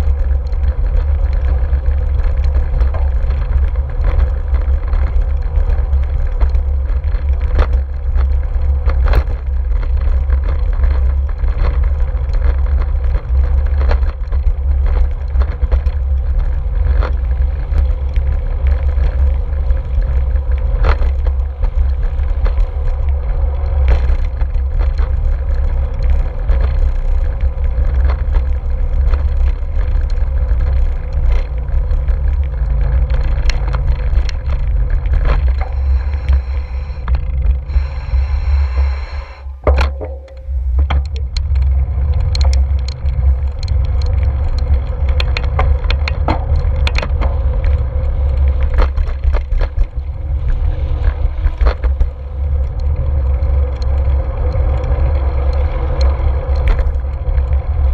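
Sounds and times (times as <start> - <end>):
bike knocks and rattles: 0.0 - 37.7, 39.4 - 57.9
bicycle rolling over pavement: 0.0 - 57.9
low wind rumble on microphone: 0.0 - 57.9.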